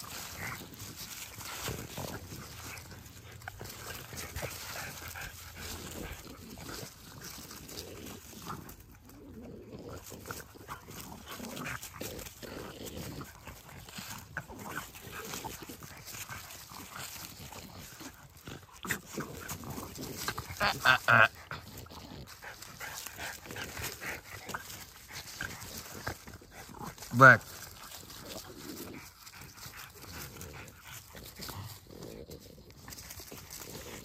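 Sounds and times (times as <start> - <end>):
puppies play-fighting: 0.0 - 34.0.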